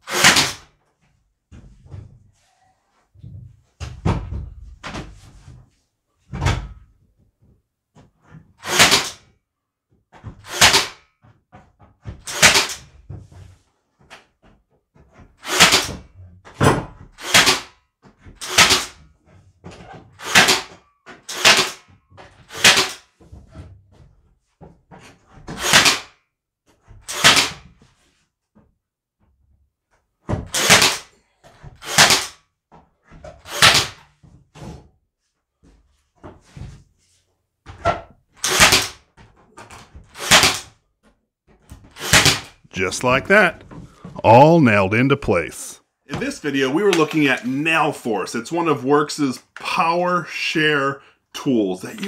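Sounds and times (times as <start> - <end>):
nail gun firing into boards: 0.0 - 0.7, 8.6 - 9.3, 10.2 - 11.1, 12.1 - 13.0, 15.4 - 19.1, 20.0 - 23.1, 25.3 - 26.2, 27.0 - 27.8, 30.3 - 32.5, 33.3 - 34.1, 37.8 - 40.8, 41.8 - 42.6.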